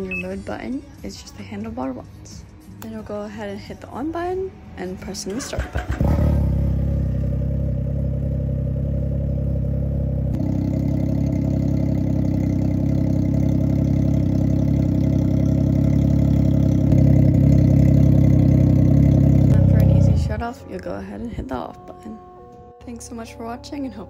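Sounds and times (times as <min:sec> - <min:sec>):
engine idling: 0:05.6 - 0:20.4.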